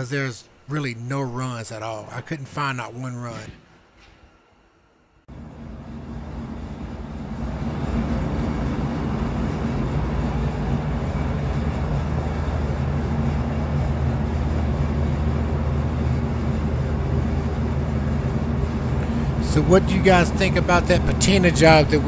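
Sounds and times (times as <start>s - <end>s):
machine drone with low hum: 5.3s - 22.0s.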